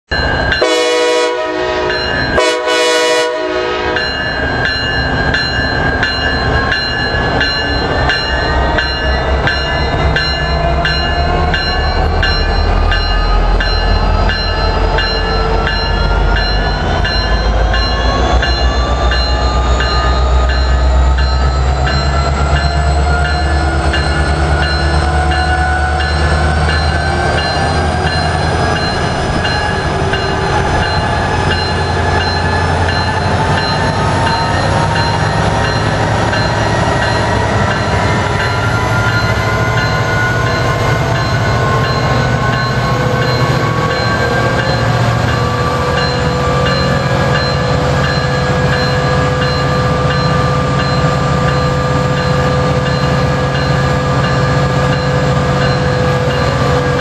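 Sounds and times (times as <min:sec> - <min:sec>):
locomotive horn blasts: 0:00.6 - 0:04.1.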